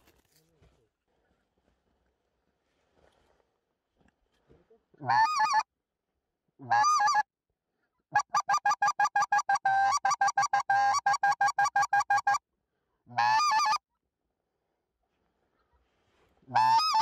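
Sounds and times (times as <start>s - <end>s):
goose call honking: 13.2s - 13.8s, 16.5s - 17.0s.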